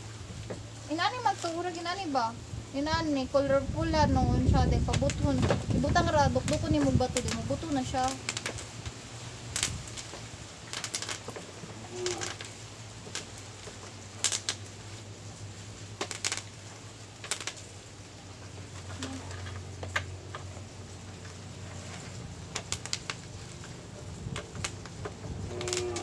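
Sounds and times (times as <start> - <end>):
low steady hum: 0.0 - 26.0
bubble wrap popping: 0.9 - 2.4, 4.7 - 15.0, 15.8 - 17.9, 21.1 - 26.0.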